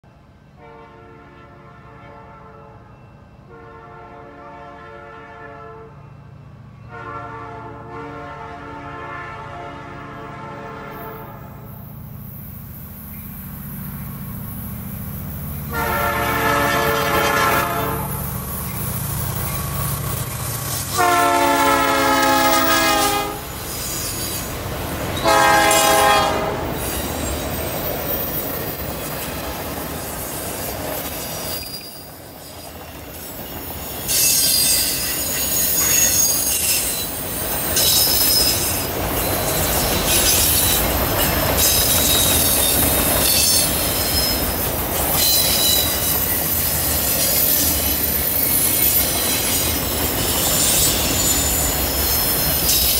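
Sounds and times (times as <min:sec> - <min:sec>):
train rumble: 0:00.0 - 0:52.9
locomotive air horn blasts: 0:00.6 - 0:02.9, 0:03.5 - 0:06.0, 0:06.9 - 0:11.8, 0:15.7 - 0:18.2, 0:20.9 - 0:23.6, 0:25.2 - 0:26.9
train wheels squealing: 0:02.8 - 0:03.5, 0:11.7 - 0:15.8, 0:17.9 - 0:21.0, 0:22.4 - 0:25.8, 0:26.6 - 0:52.9.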